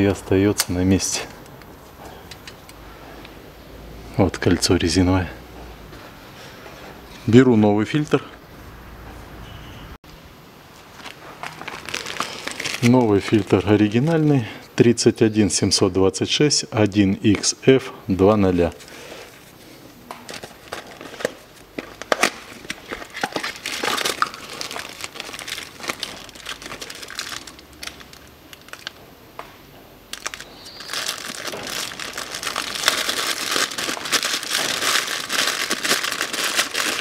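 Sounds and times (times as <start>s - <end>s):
plastic wrapping crinkling: 10.8s - 14.4s, 18.6s - 29.1s, 30.1s - 37.0s.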